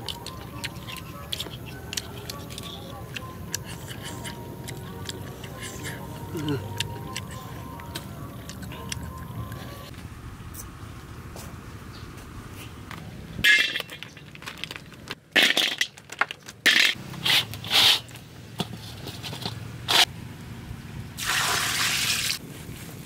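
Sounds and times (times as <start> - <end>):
water pouring: 21.2 - 22.4.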